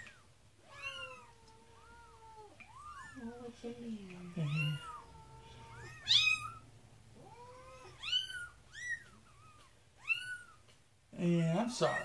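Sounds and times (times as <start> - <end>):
kitten mewing: 4.2 - 6.6, 7.2 - 10.7.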